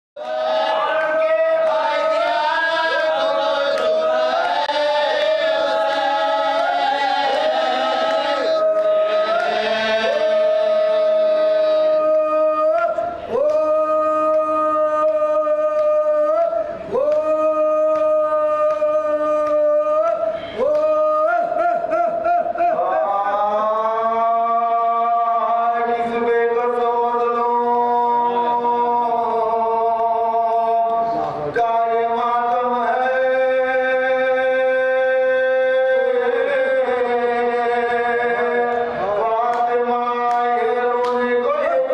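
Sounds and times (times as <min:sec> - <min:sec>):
men chanting: 0:00.2 - 0:41.9.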